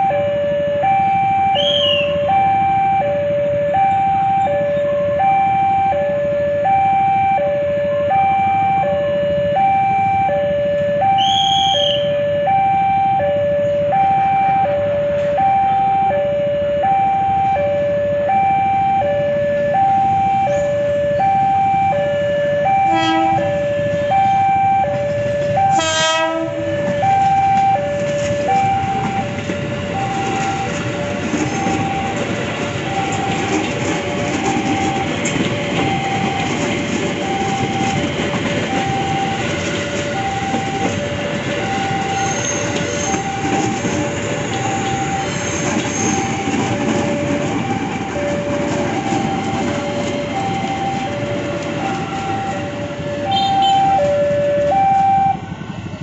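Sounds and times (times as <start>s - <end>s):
train wheels rumbling on rails: 0.0s - 6.6s, 7.8s - 56.0s
level crossing two-tone alarm: 0.0s - 56.0s
train horn blasts: 1.5s - 2.3s, 11.1s - 12.2s, 22.7s - 24.5s, 25.1s - 29.3s, 53.2s - 54.1s.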